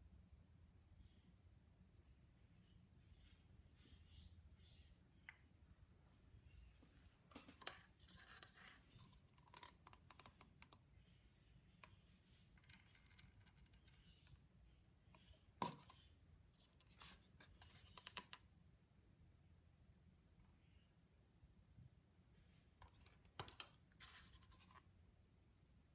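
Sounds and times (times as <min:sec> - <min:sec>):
faint clicks and taps: 0:07.3 - 0:10.9, 0:16.7 - 0:18.5.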